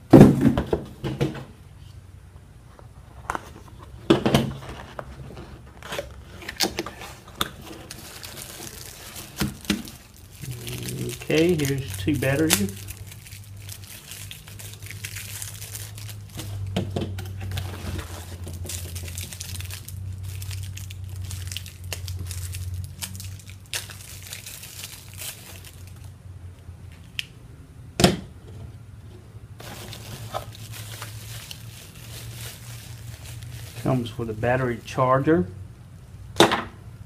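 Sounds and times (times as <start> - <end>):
low steady hum: 0.0 - 37.0
plastic packaging crinkling: 4.5 - 26.1, 29.6 - 35.0.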